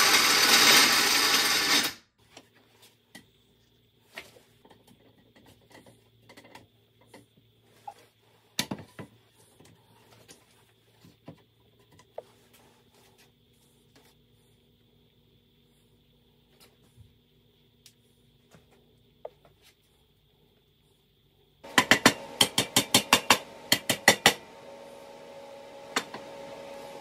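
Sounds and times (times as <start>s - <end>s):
loud workshop noise: 0.0s - 2.0s, 21.6s - 27.0s.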